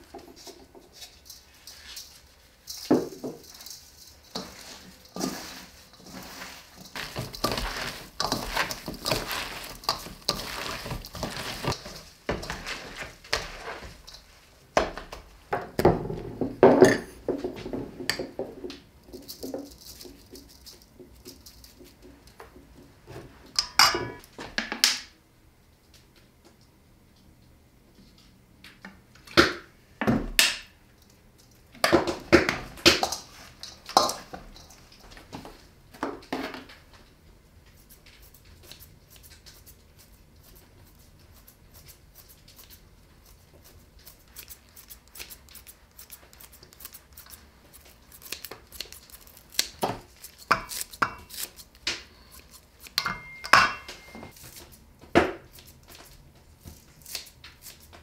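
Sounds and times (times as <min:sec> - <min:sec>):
clinks against steel bowl: 0:23.6 - 0:24.2, 0:53.0 - 0:54.3
scissors snipping herbs: 0:38.2 - 0:53.4, 0:57.0 - 0:57.9.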